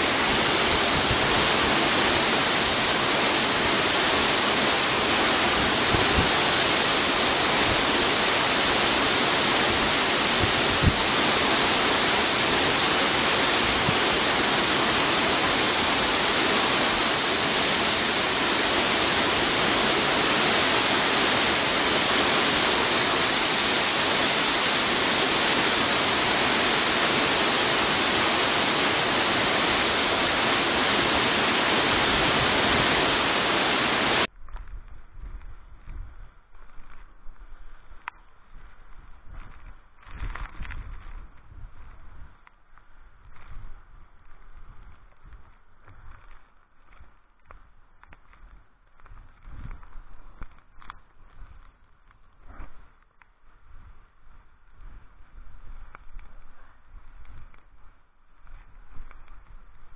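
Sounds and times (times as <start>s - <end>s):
waterfall rushing into pool: 0.0s - 34.3s.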